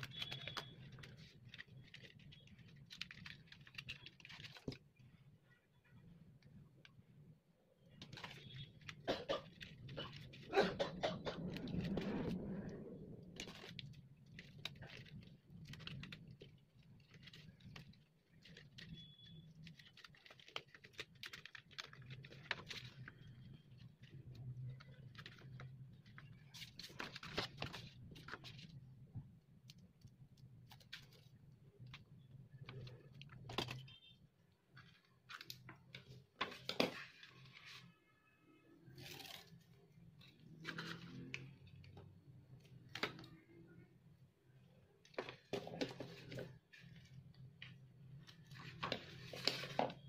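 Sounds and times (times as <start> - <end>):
paper rustling and tapping: 0.0 - 5.0, 7.9 - 10.5, 13.3 - 28.8, 29.7 - 33.9, 45.0 - 50.0.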